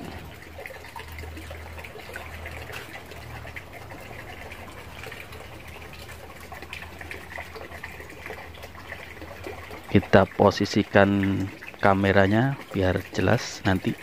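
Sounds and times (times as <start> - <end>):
water trickling into pond: 0.0 - 14.0.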